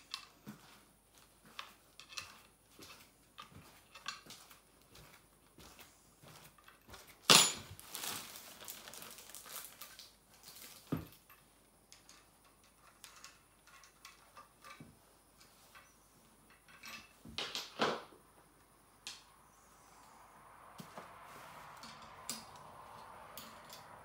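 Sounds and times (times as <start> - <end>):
plastic wrapping crinkling: 7.6 - 11.2.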